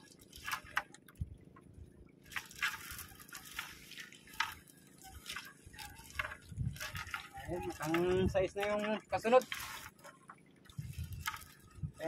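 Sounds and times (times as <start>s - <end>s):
water dripping and splashing: 0.0s - 12.0s.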